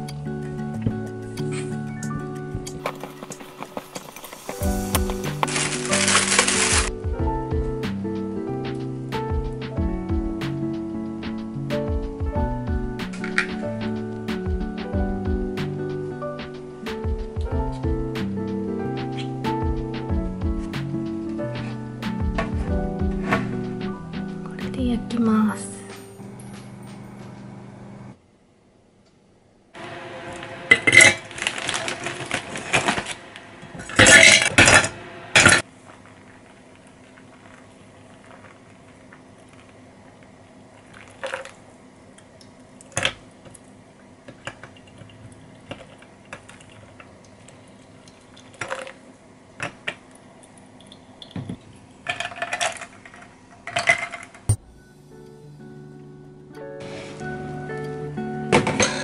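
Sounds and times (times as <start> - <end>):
kitchen utensils clattering: 5.2 - 6.9, 33.9 - 35.6.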